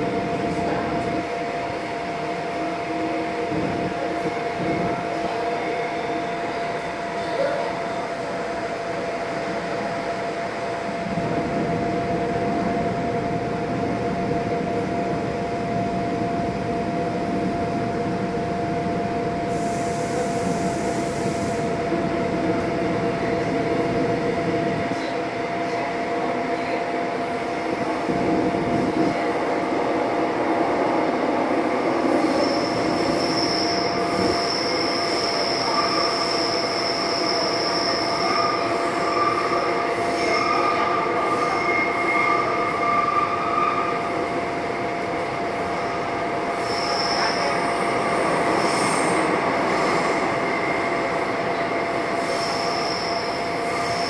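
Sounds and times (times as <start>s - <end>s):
train wheels rumbling on rail: 0.0s - 54.0s
high-pitched wheel squeal: 32.3s - 39.5s.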